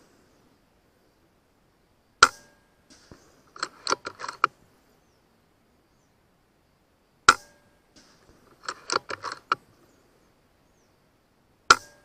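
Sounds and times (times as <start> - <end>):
air rifle shot crack: 2.2 - 3.9
rifle action clicking: 2.9 - 4.5, 8.3 - 9.6.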